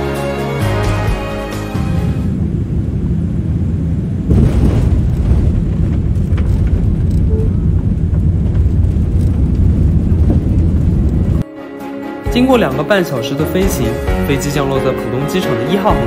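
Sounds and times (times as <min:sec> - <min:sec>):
airplane landing rumble: 0:01.3 - 0:11.4.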